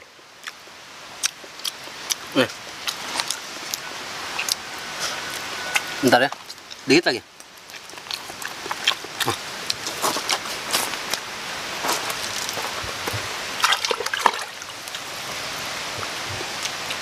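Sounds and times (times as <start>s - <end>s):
steady rushing hiss: 0.0s - 17.0s
footsteps on leaf litter: 11.8s - 13.4s.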